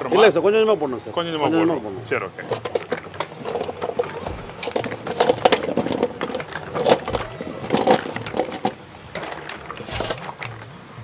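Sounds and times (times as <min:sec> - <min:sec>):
coconut pieces clattering in stone mortar: 0:02.2 - 0:10.8.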